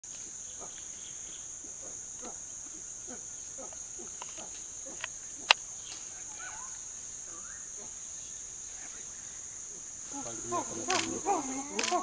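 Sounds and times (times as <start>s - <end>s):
forest insects droning: 0.0s - 12.0s.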